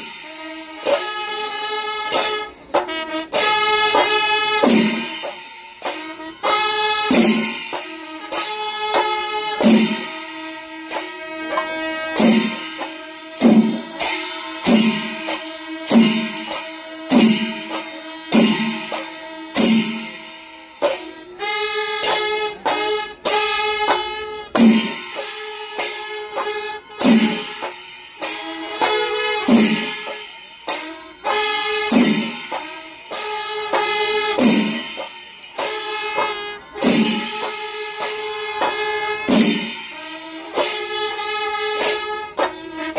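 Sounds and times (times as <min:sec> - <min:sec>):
cymbals clashing: 0:00.0 - 0:42.9
drums beating heavy strokes: 0:00.0 - 0:42.9.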